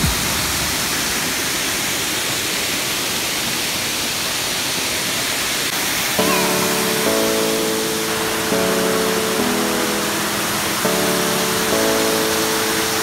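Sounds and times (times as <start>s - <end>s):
waterfall rushing into pool: 0.0s - 13.0s.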